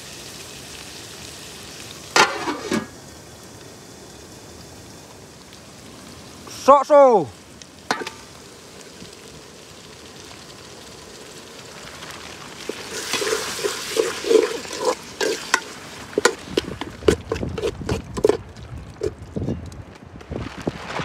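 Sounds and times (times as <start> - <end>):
vegetables sizzling in a pot: 0.0 - 19.2
metal spoon scraping pot: 12.7 - 18.4.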